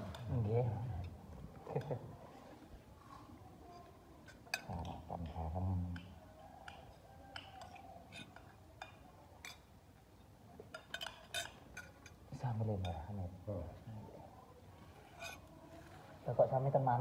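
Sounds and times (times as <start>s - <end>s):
spoons clinking on china plates: 3.6s - 9.8s, 10.6s - 13.2s, 15.0s - 15.6s.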